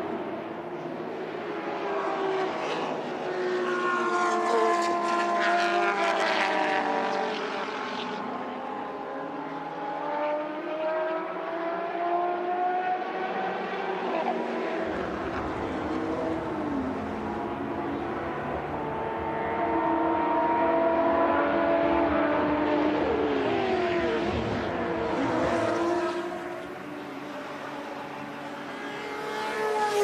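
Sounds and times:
race car engine passing: 0:00.1 - 0:30.0.

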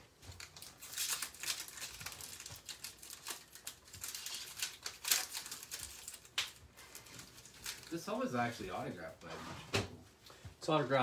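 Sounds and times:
wrappers crinkling and tearing: 0:00.0 - 0:09.2
cards rustling and clicking: 0:00.1 - 0:08.9.

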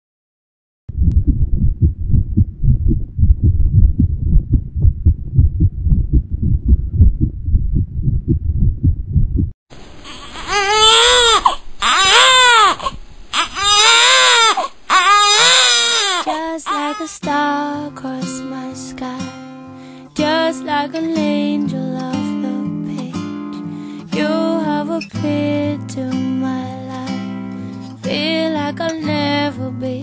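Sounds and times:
fetal heartbeat on doppler: 0:00.9 - 0:09.6
newborn baby crying: 0:10.0 - 0:17.2.

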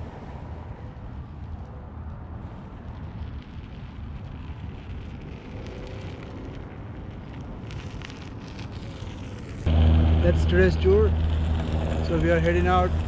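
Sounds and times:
electric board whine: 0:09.2 - 0:13.0.

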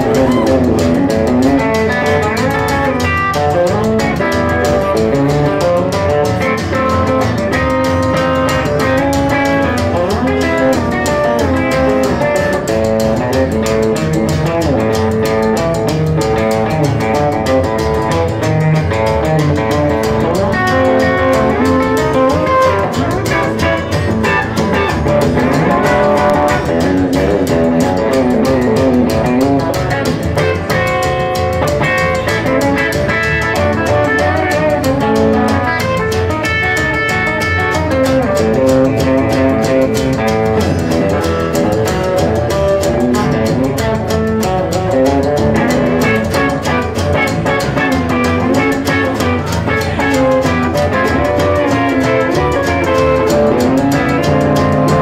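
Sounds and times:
electric guitar sliding notes: 0:00.0 - 0:55.0
strummed acoustic guitar: 0:00.0 - 0:55.0
upright bass walking: 0:00.0 - 0:55.0.

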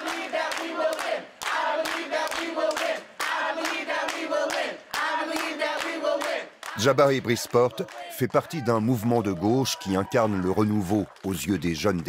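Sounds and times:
crowd chanting in unison: 0:00.0 - 0:08.6
hands clapping: 0:00.0 - 0:12.0.

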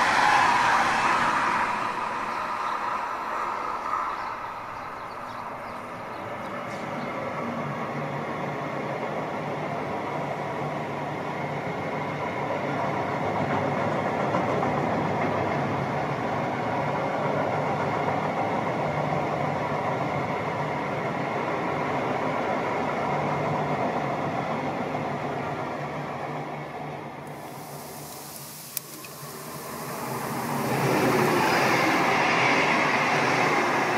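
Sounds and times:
train rumbling: 0:00.0 - 0:33.9
faint hum: 0:27.3 - 0:33.9.

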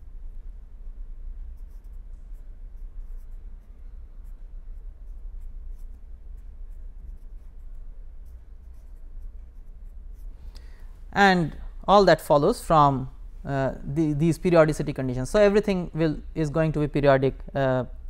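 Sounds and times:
steady low hum: 0:00.0 - 0:18.0
marker pen scratching on paper: 0:01.4 - 0:10.4.

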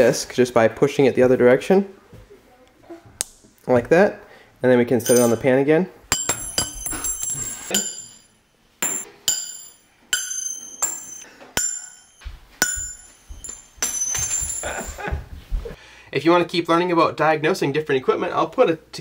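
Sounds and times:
sharp metallic clinks: 0:05.0 - 0:15.1.

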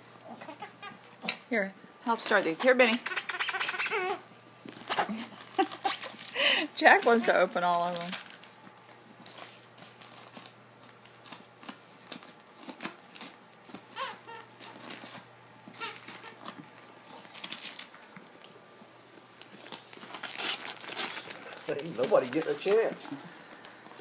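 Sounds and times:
dog squeaks: 0:02.9 - 0:04.2, 0:14.0 - 0:14.8
wrapping paper rustling and ripping: 0:04.7 - 0:18.5, 0:19.4 - 0:24.0.

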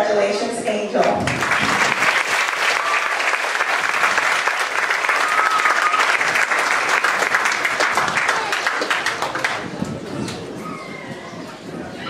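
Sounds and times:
audience applauding: 0:01.1 - 0:10.6.

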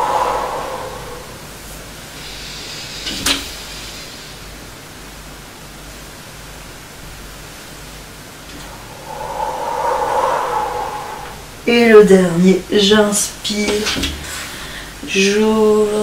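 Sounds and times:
breathy exhale: 0:00.0 - 0:04.8, 0:14.4 - 0:15.0.

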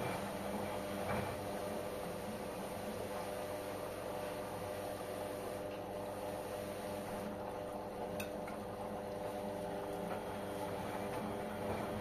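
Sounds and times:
washing machine motor hum: 0:00.0 - 0:12.0.

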